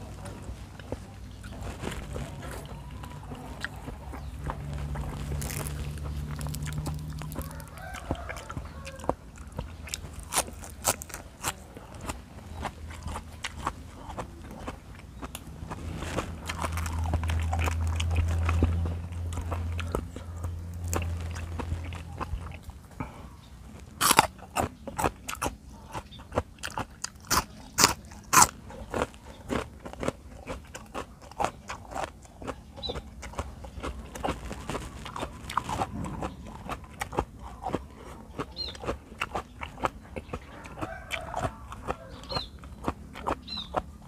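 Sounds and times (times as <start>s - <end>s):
chewing and crunching cabbage: 0.0s - 44.0s
low steady hum: 0.0s - 44.0s.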